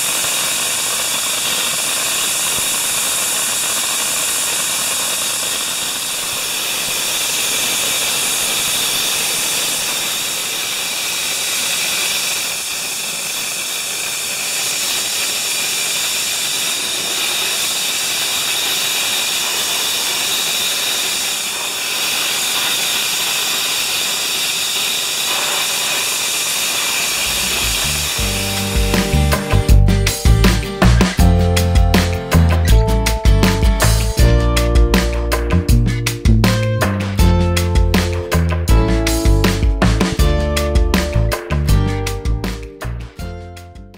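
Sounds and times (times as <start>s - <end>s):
dry ice blasting hiss: 0.0s - 32.7s
music: 27.3s - 43.9s.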